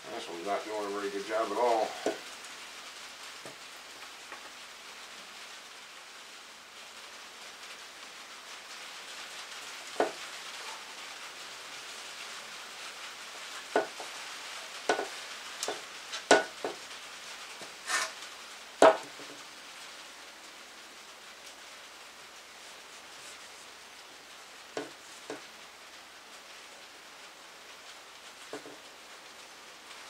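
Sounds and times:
steady low hiss: 0:00.0 - 0:30.0
brief scrape: 0:17.9 - 0:18.2.

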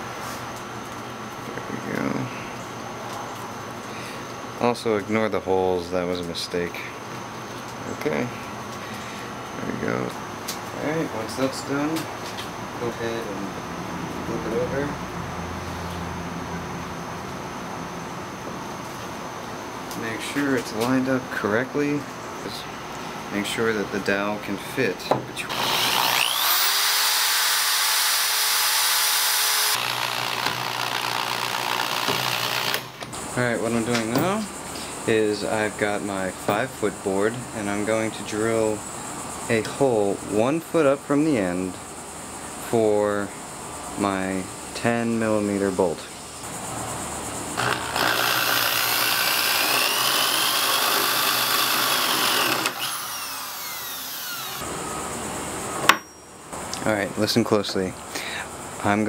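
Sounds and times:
electric drill boring into wood: 0:25.5 - 0:32.9, 0:47.6 - 0:54.6.

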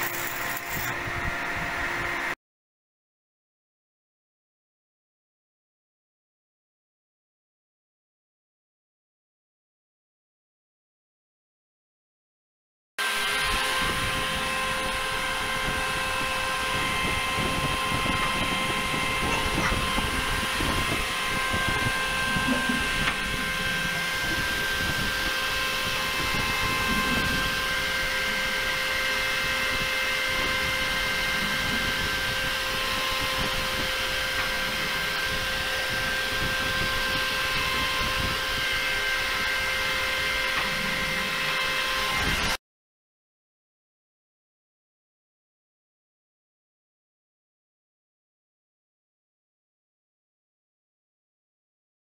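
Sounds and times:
machinery humming and whining: 0:00.0 - 0:02.4, 0:13.0 - 0:42.6.

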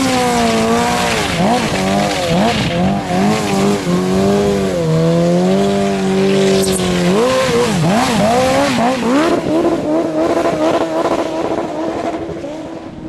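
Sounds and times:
tyre spinning on pavement: 0:00.0 - 0:09.6
motorcycle engine revving: 0:00.0 - 0:13.0.

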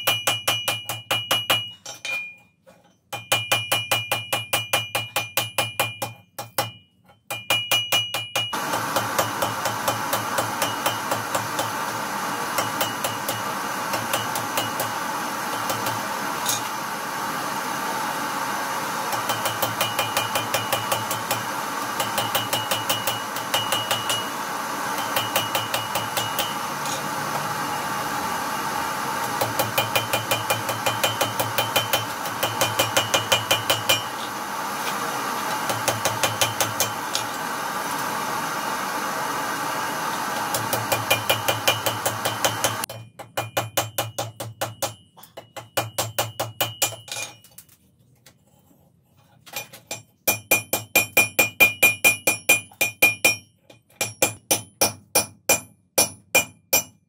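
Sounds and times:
hammer striking iron on anvil: 0:00.0 - 0:02.4, 0:03.1 - 0:11.8, 0:12.5 - 0:16.7, 0:19.1 - 0:24.4, 0:25.0 - 0:27.1, 0:29.3 - 0:34.3, 0:35.6 - 0:37.2, 0:40.5 - 0:47.4, 0:49.9 - 0:57.0.

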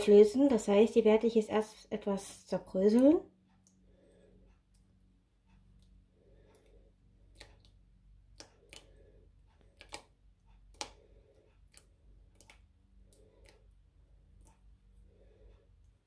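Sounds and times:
hands crumbling yeast: 0:07.3 - 0:14.7.

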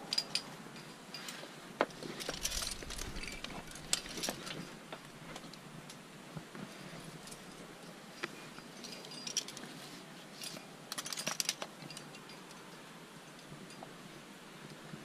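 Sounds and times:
climbing gear clinking: 0:00.0 - 0:05.6, 0:07.2 - 0:12.8.

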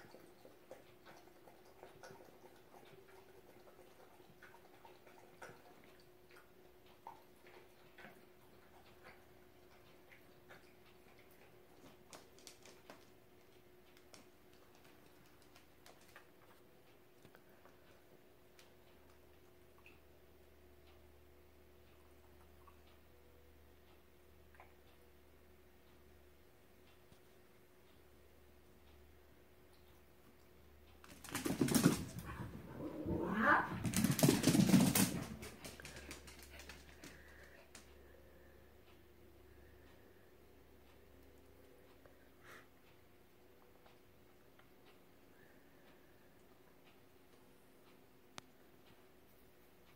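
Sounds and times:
faint steady hum: 0:00.0 - 0:49.9
dog claws clicking on vinyl floor: 0:12.1 - 0:13.2, 0:13.9 - 0:16.3, 0:31.0 - 0:37.8.

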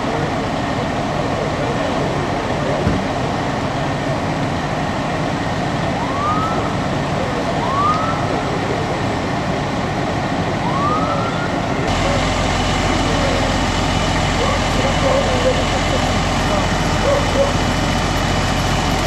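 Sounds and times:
idling engines and traffic: 0:00.0 - 0:19.0
rising siren whoops: 0:06.0 - 0:06.8, 0:07.4 - 0:08.6, 0:10.6 - 0:12.2.

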